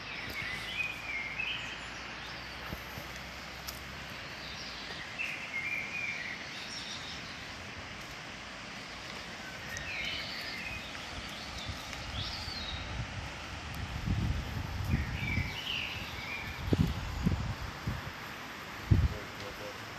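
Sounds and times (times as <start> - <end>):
bird chirping: 0.0 - 2.8, 4.1 - 7.6, 8.8 - 13.0, 14.8 - 17.4
fast river rushing: 0.0 - 19.9.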